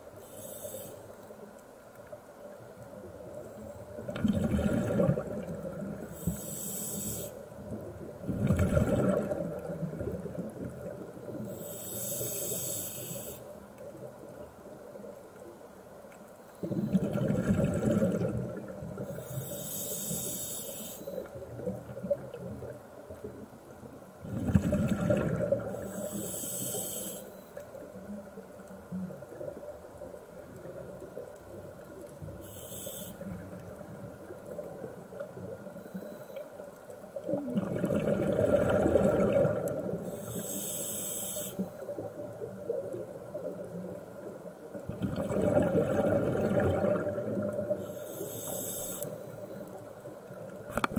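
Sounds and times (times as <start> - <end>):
scuba regulator hiss: 0.2 - 1.1, 6.1 - 7.5, 11.5 - 13.5, 19.1 - 21.3, 25.8 - 27.4, 32.4 - 33.4, 40.0 - 41.9, 47.8 - 49.4
bubbling exhaled air underwater: 4.0 - 6.5, 8.2 - 11.2, 16.6 - 19.3, 24.2 - 26.3, 37.2 - 40.4, 44.8 - 48.4.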